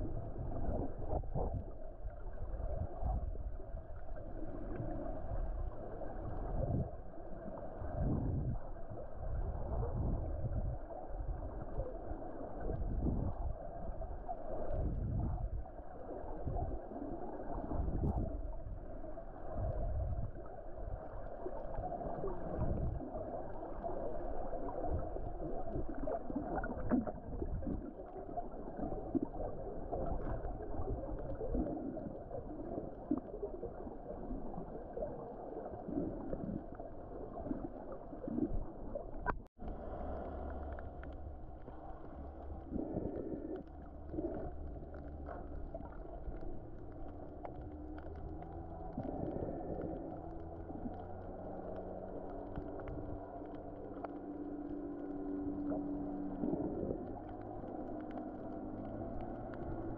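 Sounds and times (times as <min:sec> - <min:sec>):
underwater rushing and gurgling: 0:00.0 - 0:59.9
steady low hum: 0:35.8 - 0:59.9.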